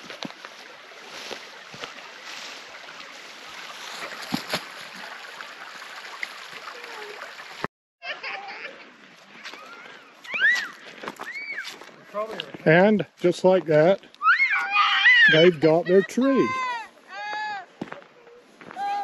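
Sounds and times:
footsteps crunching dry grass: 0.0 - 6.1, 9.2 - 12.7.

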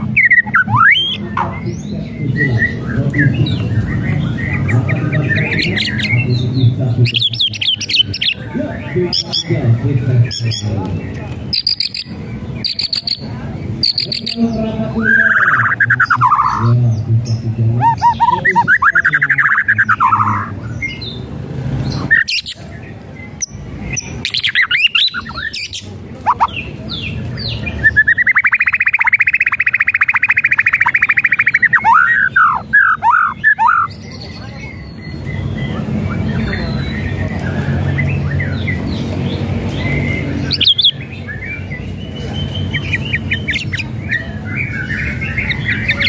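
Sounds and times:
bird singing: 0.0 - 46.0
rattling trilled calls: 27.8 - 34.4.

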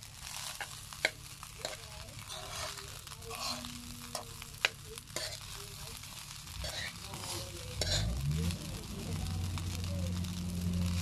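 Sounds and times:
rice sizzling: 0.0 - 11.0
metal spoon scraping pan: 0.3 - 8.6.

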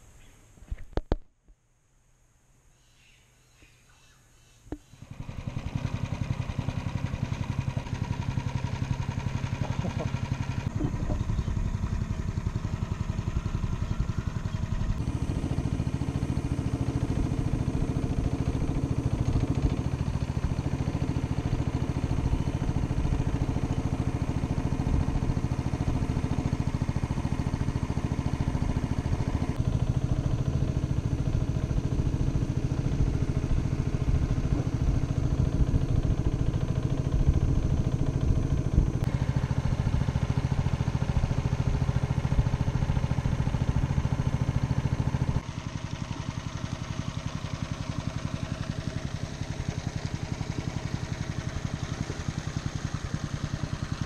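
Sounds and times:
boat motor running: 4.7 - 54.0.

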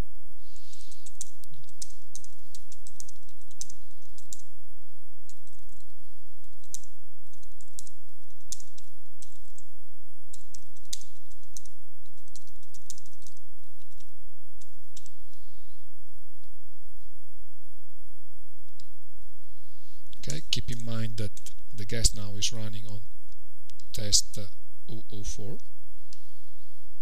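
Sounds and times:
background hum: 0.0 - 27.0
keyboard typing: 0.7 - 4.5, 5.3 - 9.7, 10.3 - 15.4.

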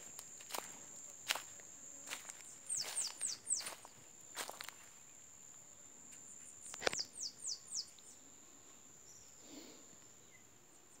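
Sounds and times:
high-pitched insect trill: 0.0 - 5.6.

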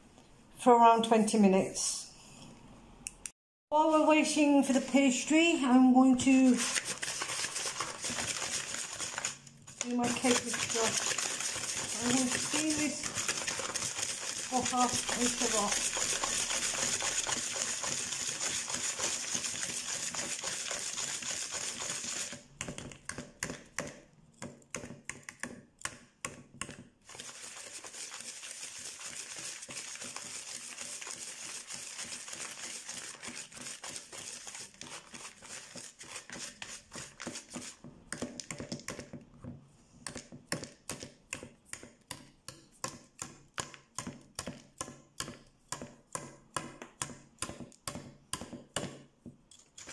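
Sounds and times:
whisk scraping plastic bowl: 4.3 - 23.8, 27.1 - 39.0, 49.5 - 49.9.

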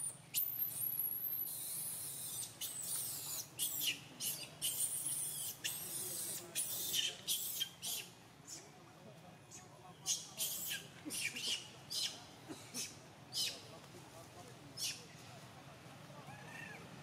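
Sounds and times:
baby monkey screaming: 0.3 - 8.1, 10.1 - 12.2.

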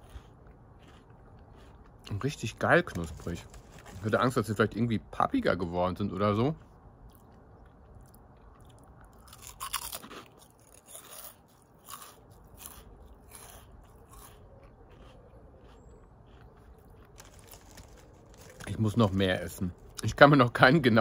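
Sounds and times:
person chewing crunchy snacks: 0.0 - 4.2, 6.6 - 20.0.

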